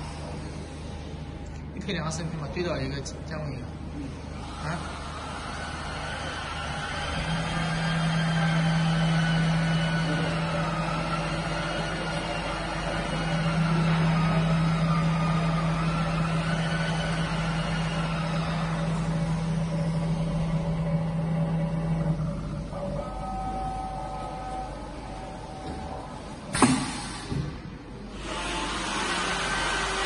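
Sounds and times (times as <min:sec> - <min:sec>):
whining motor tones: 0:03.8 - 0:26.6, 0:27.3 - 0:30.0
router machine hum: 0:04.2 - 0:26.0, 0:28.1 - 0:30.0.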